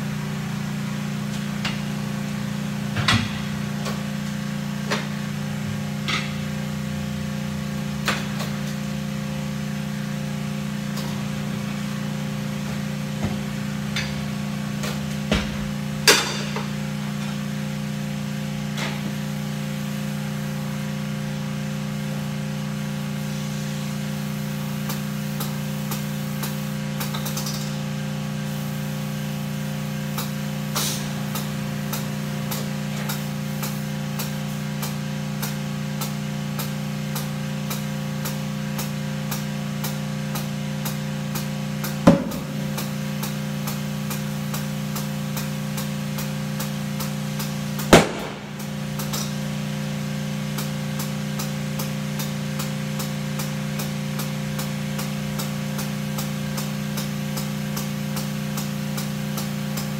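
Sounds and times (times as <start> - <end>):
steady low hum: 36.6 - 59.5.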